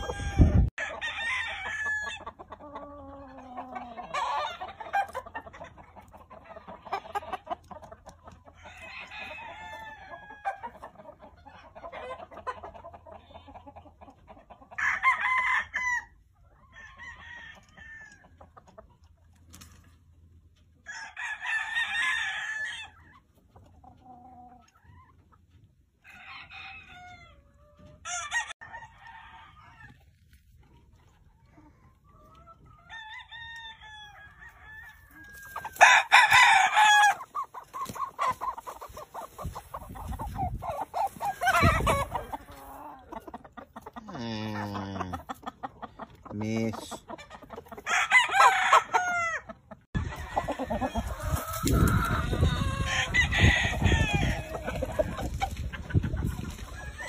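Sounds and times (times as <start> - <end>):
roosters crowing: 0.0 - 5.1, 8.5 - 10.8, 14.7 - 18.3, 20.8 - 23.0, 26.0 - 30.2, 32.7 - 43.3, 47.7 - 55.6, 56.5 - 57.0
rooster clucking: 0.0 - 15.6, 33.8 - 57.0.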